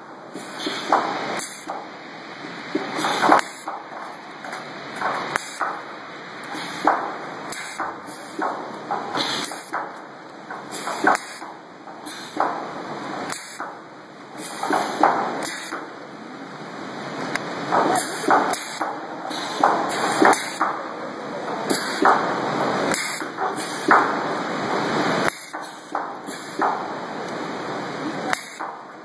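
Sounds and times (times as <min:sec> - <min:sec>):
stud welding arc bursts: 0:28.3 - 0:28.6.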